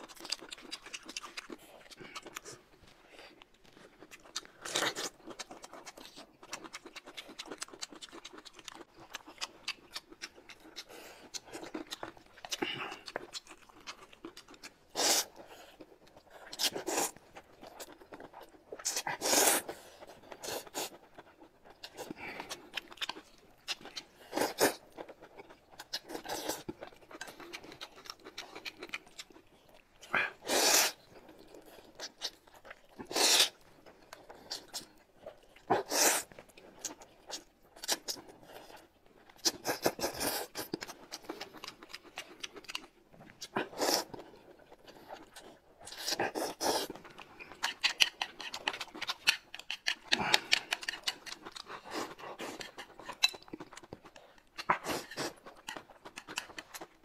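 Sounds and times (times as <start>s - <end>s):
chewing: 0.0s - 57.0s
noodles being slurped: 30.3s - 31.0s.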